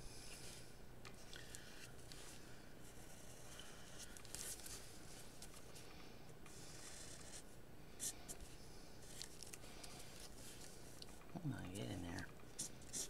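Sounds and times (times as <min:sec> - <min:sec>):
felt-tip marker scratching on paper: 0:06.5 - 0:07.4, 0:12.6 - 0:13.0.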